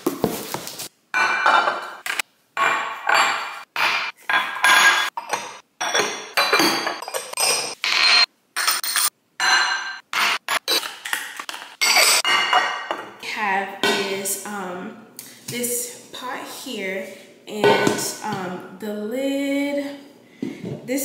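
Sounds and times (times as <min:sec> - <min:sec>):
glass dishes clinking: 0:01.2 - 0:02.0, 0:02.6 - 0:10.9, 0:11.8 - 0:13.1.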